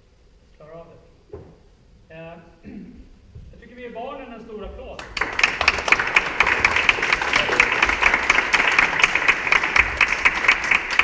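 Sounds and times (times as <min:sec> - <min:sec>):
group applauding: 0:05.0 - 0:11.0.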